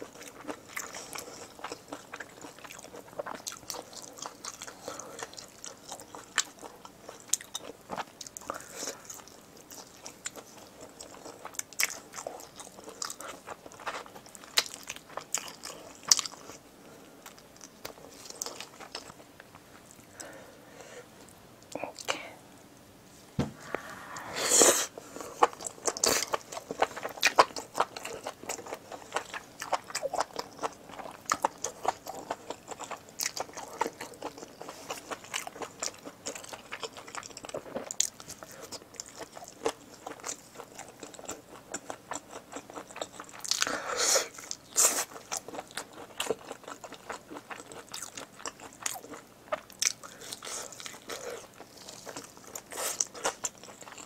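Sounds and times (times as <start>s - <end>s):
close chewing with mouth clicks: 0.0s - 20.4s, 24.9s - 54.0s.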